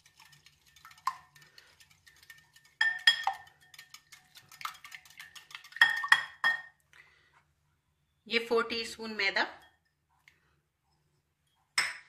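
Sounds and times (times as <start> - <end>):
whisk ticking against glass bowl: 0.0 - 6.7.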